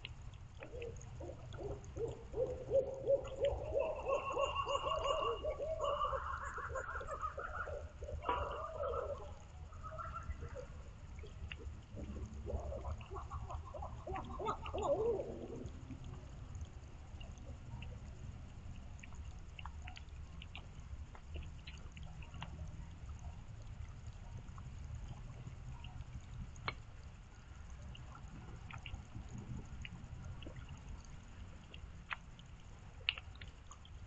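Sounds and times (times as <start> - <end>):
rain dripping: 0.0 - 34.0
owl hooting: 0.7 - 9.2
steady low rumble: 9.3 - 34.0.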